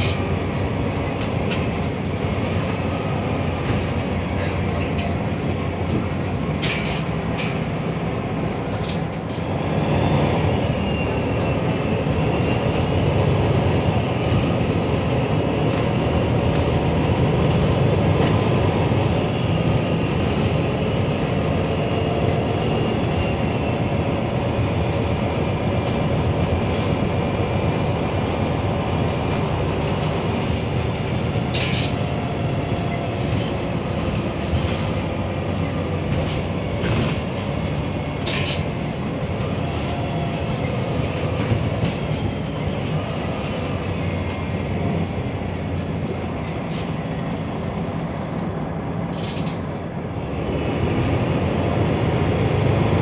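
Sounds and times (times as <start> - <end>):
bus engine and road rumble: 0.0 - 53.0.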